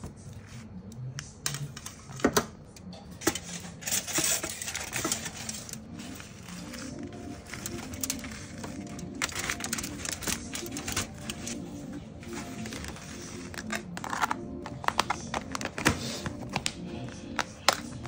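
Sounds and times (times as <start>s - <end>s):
aluminium foil crinkling: 3.2s - 16.8s.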